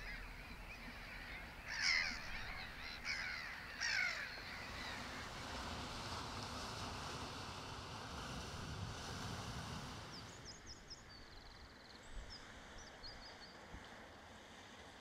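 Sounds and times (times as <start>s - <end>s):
gulls calling: 0.0s - 5.5s
steady outdoor hiss: 0.0s - 15.0s.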